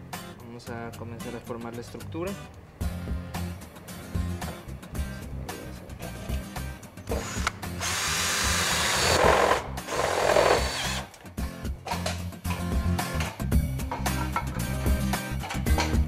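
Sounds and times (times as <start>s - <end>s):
background music: 0.0s - 16.0s
drill driving screws into metal: 7.1s - 11.2s.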